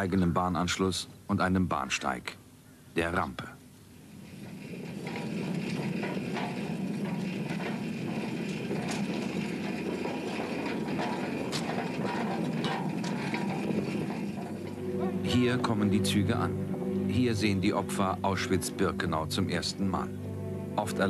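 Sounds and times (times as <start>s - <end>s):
railway wagon rolling on track: 0.0s - 2.4s, 3.0s - 21.0s
wheels clicking on rails: 0.0s - 2.4s, 3.0s - 21.0s.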